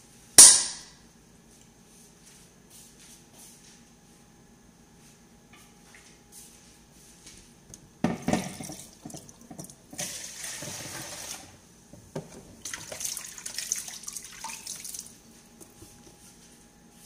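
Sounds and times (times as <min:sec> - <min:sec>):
water running and splashing: 0:08.4 - 0:11.6, 0:12.6 - 0:15.2.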